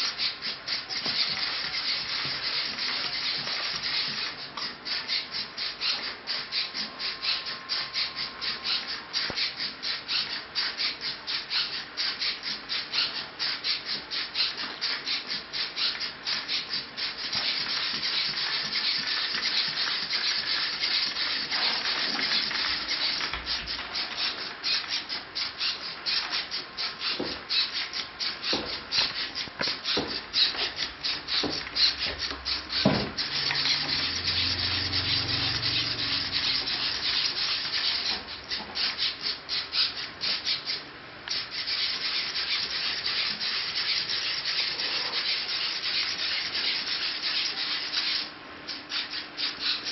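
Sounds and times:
robot servos buzzing: 0.2 - 10.9, 17.4 - 49.9
knocks: 32.8 - 33.2.

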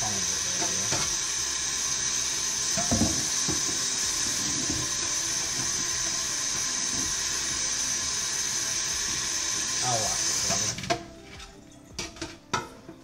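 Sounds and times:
tap running into sink: 0.6 - 1.2, 2.7 - 7.3.

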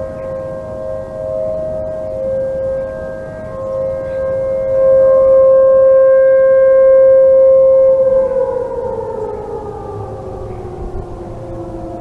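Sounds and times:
warning sirens: 0.0 - 12.0.

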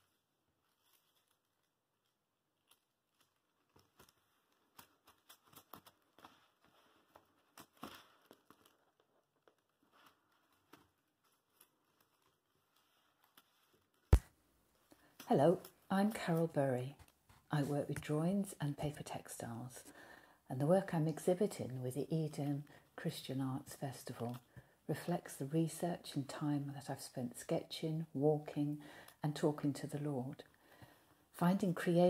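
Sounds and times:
paper rustling and crinkling: 0.0 - 14.2.

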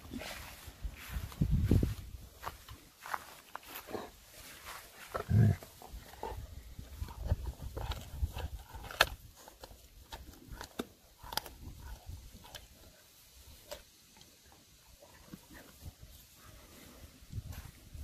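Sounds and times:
dog gnawing a bone: 5.1 - 13.9.

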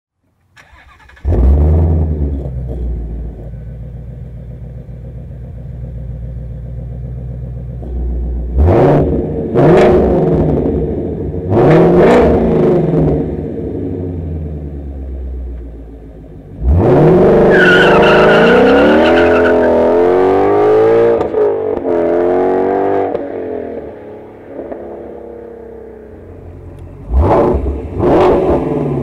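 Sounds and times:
car engine idling: 0.2 - 9.6, 13.2 - 16.8, 23.8 - 28.0
car engine starting: 0.2 - 29.0
car engine revving: 0.6 - 29.0.

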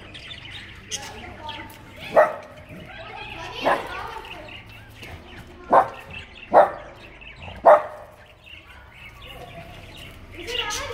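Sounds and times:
puppy barking: 2.0 - 2.7, 3.6 - 4.1, 5.7 - 8.2.

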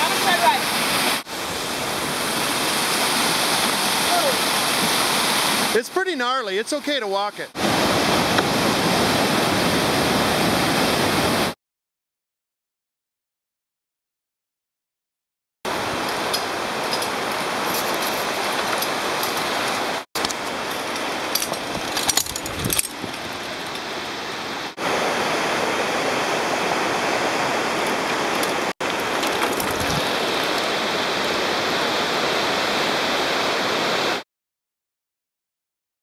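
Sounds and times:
steady rushing outdoor noise: 0.0 - 5.9, 15.7 - 34.2.

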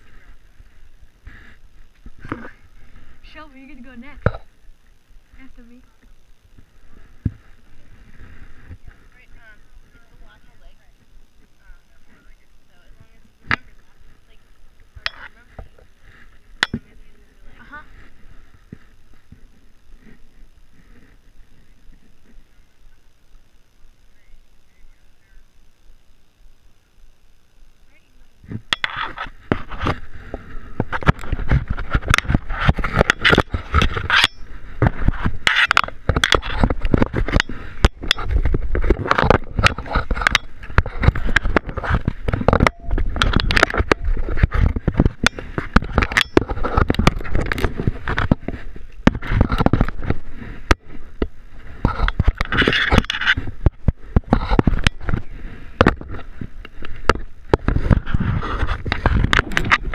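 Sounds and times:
knocks and scrapes on wooden pole: 28.5 - 59.9.

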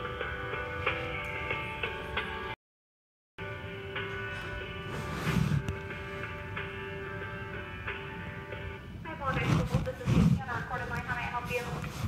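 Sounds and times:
telephone hold music: 0.0 - 2.6, 3.4 - 12.0.

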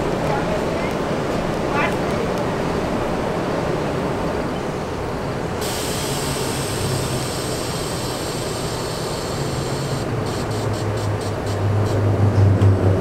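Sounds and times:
subway train equipment humming: 0.0 - 13.0
steady high hiss: 5.0 - 12.0.

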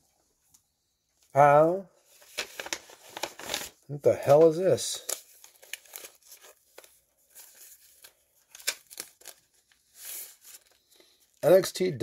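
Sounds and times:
paper rustling and crinkling: 2.0 - 11.0.

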